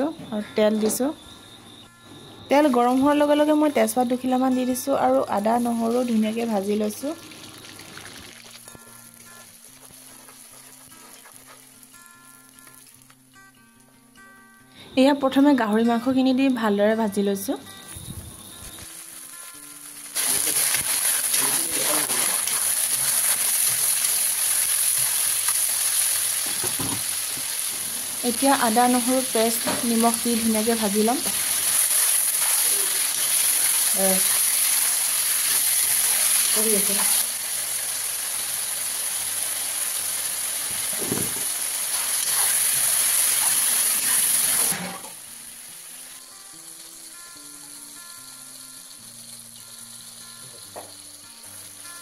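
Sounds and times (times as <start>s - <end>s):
meat sizzling in hot oil: 5.2s - 13.1s, 18.0s - 52.0s.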